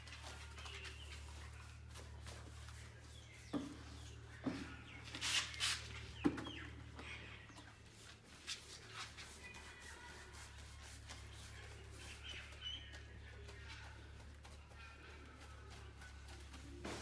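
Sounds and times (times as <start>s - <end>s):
paintbrush knocking plastic bucket: 3.4s - 5.0s
birds clucking and calling: 11.8s - 17.0s.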